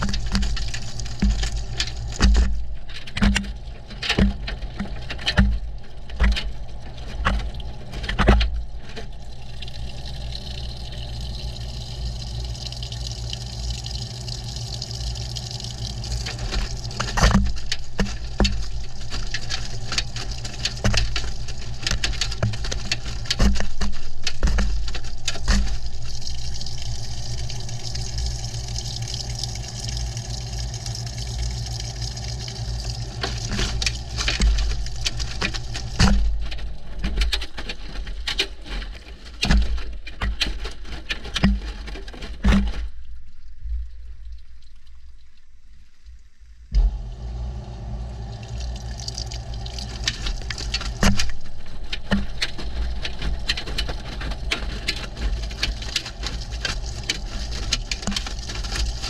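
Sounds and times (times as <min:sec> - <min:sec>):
washing machine drum hum: 0:00.0 - 0:42.8, 0:46.7 - 0:59.0
water sloshing: 0:00.0 - 0:47.2, 0:48.0 - 0:59.0
items clunking against camera: 0:49.8 - 0:59.0.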